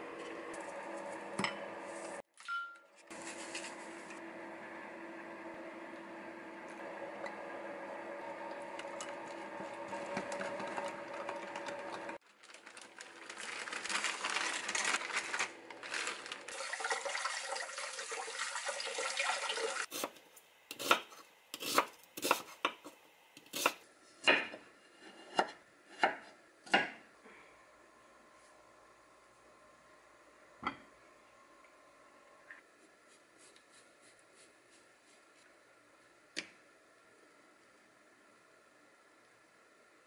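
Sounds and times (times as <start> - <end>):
tap water running into colander: 15.9 - 19.9
knife chopping on wooden board: 19.9 - 24.6, 25.2 - 27.0.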